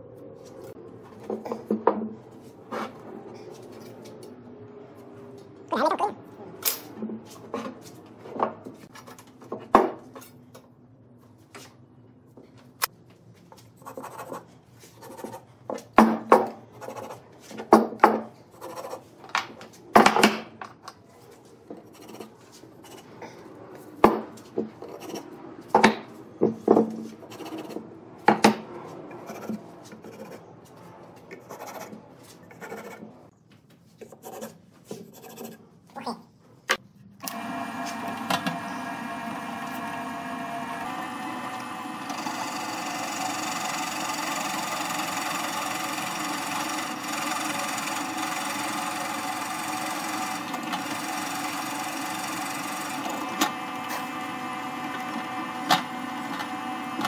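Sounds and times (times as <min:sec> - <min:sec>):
pen and ruler scraping wood: 0:29.1 - 0:30.5, 0:31.3 - 0:33.1, 0:34.0 - 0:35.6.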